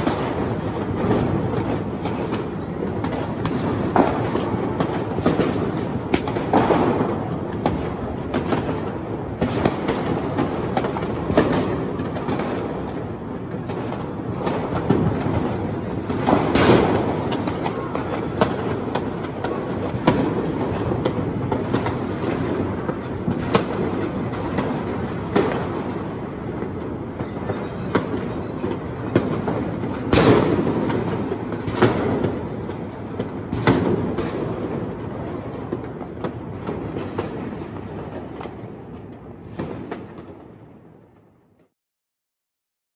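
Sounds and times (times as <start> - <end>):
distant firework bangs: 0.0 - 40.5
sharp firecracker cracks: 3.0 - 8.8, 14.4 - 25.6, 29.2 - 32.4.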